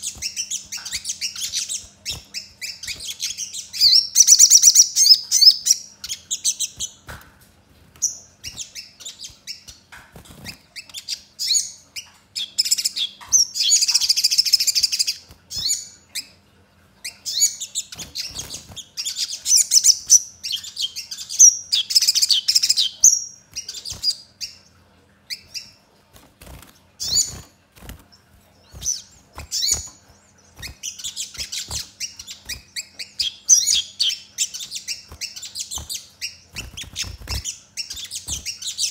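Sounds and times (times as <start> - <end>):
bird chirping and trilling: 0.0 - 7.0, 7.9 - 38.9.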